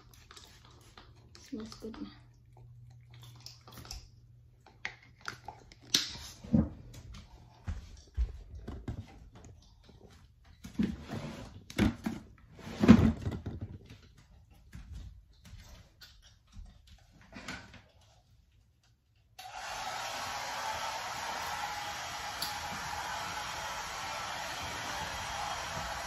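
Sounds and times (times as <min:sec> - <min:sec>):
hair dryer running: 0:19.4 - 0:26.0.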